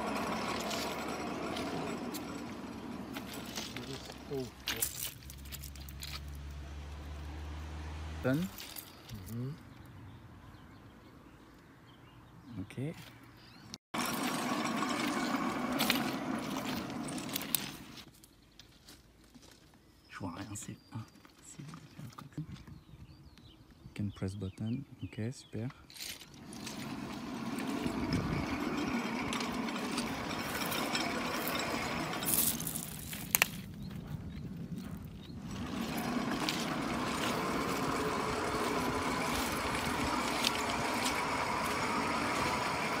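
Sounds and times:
trolley wheels rumbling on rails: 0:00.0 - 0:06.4, 0:14.0 - 0:18.1, 0:26.0 - 0:43.0.

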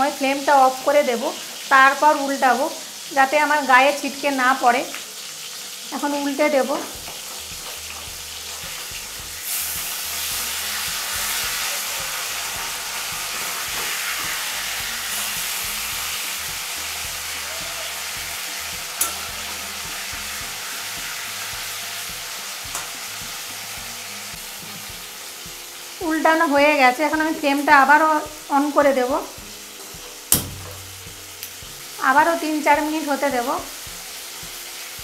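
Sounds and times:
fish sizzling in oil: 0:00.0 - 0:35.0
spatula clinking against pan: 0:19.0 - 0:19.7.

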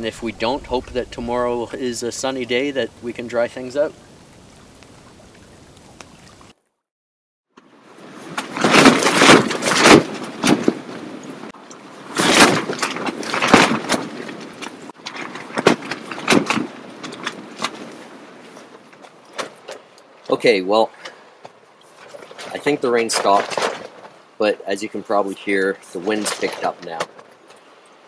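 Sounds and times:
faint ambience: 0:00.0 - 0:06.4
wind gusts buffeting a tent: 0:00.0 - 0:06.5, 0:07.7 - 0:20.4
tent fabric flapping: 0:08.0 - 0:19.8.

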